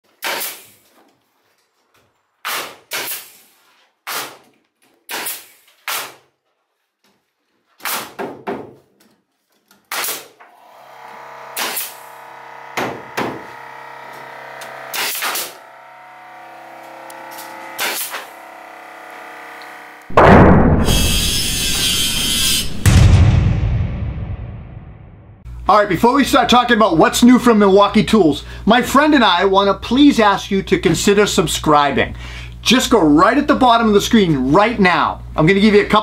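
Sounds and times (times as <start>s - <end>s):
nail gun shots: 0.1s - 0.8s, 2.4s - 4.5s, 5.1s - 6.3s, 7.8s - 8.6s, 9.8s - 10.4s, 11.5s - 12.1s, 14.9s - 15.6s, 17.4s - 18.4s, 20.1s - 23.1s
steady humming tone: 10.8s - 20.1s.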